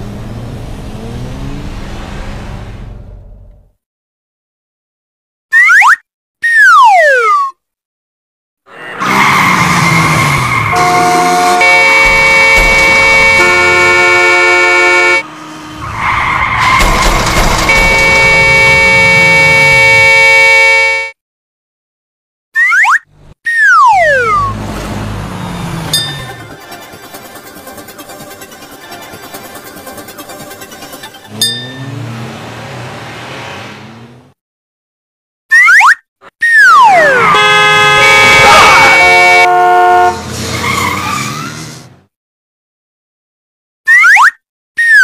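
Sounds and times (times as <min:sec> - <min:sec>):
road and engine noise: 0:00.0 - 0:03.8, 0:08.7 - 0:21.2, 0:23.0 - 0:34.4, 0:36.7 - 0:42.2
vehicle horns blaring: 0:10.5 - 0:21.2, 0:25.9 - 0:32.9, 0:37.1 - 0:40.5
comic whistle effects: 0:22.6 - 0:24.6, 0:35.5 - 0:37.2, 0:43.9 - 0:45.0.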